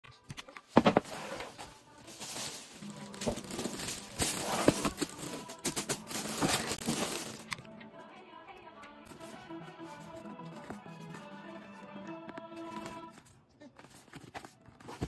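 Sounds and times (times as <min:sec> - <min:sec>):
plastic bag rustling and crinkling: 0:00.8 - 0:07.6.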